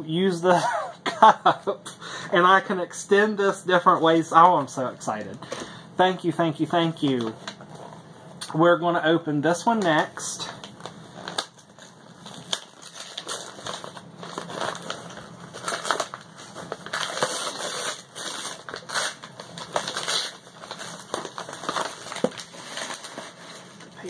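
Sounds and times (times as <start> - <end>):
paper crinkling and rustling: 9.7 - 24.0.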